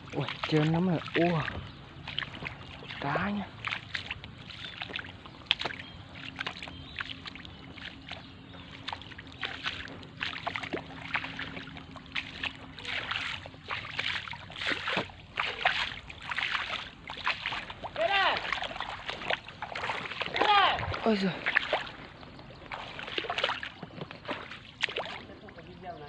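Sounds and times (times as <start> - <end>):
feet wading through water: 0.0 - 26.0.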